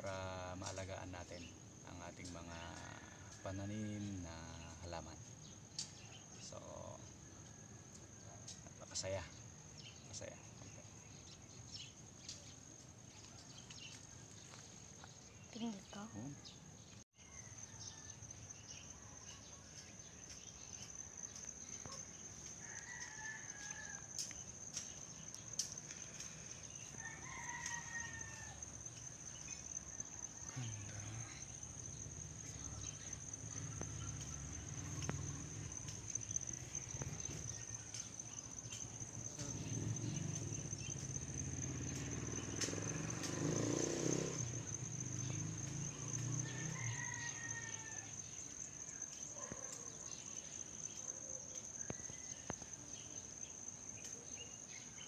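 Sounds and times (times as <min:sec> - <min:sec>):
crickets trilling: 0:00.0 - 0:55.0
distant rooster crowing: 0:17.2 - 0:19.8, 0:21.8 - 0:24.5, 0:26.0 - 0:48.7, 0:51.8 - 0:52.7.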